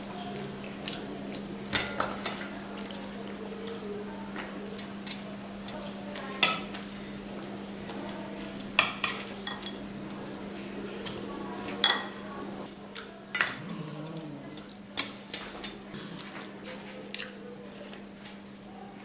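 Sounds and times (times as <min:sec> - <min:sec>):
hand mixing food: 0:00.0 - 0:19.0
low steady hum: 0:09.6 - 0:18.1.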